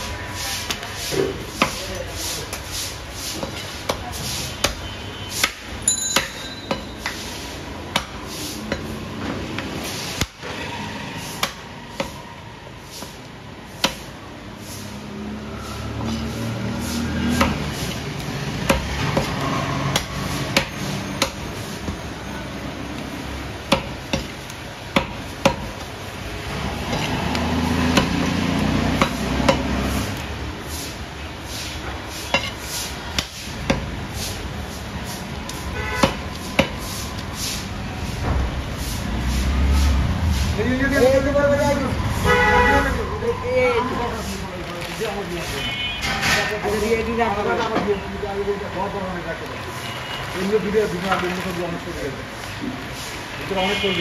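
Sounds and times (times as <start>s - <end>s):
cleaver chopping meat on wood: 1.5s - 1.8s, 3.3s - 7.2s, 7.9s - 9.0s, 9.6s - 10.5s, 11.3s - 12.3s, 13.0s - 14.1s, 17.2s - 21.4s, 23.6s - 30.2s, 32.3s - 34.1s, 36.0s - 36.9s.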